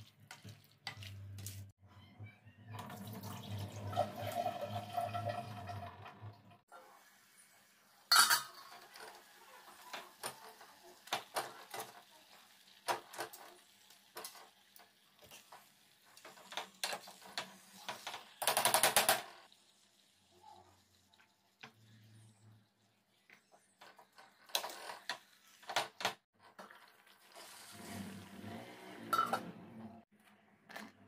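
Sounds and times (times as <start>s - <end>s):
steel bowl and utensils clattering: 2.8s - 6.4s, 8.1s - 12.0s.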